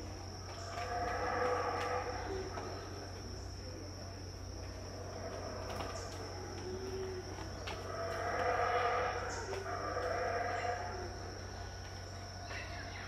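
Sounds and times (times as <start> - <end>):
distant monkeys roaring: 0.0 - 12.4
high-pitched insect drone: 0.0 - 13.0.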